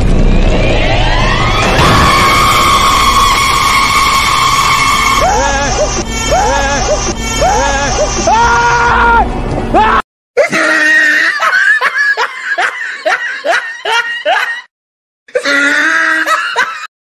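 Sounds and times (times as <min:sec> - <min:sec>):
high-pitched cackling laugh: 0:10.4 - 0:14.7, 0:15.4 - 0:16.9.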